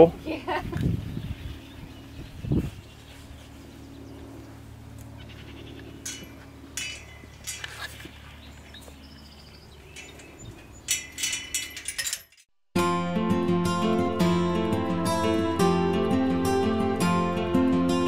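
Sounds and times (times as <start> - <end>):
steady low hum: 0.0 - 11.7
metal gate clanking and rattling: 5.9 - 8.1, 9.8 - 12.5.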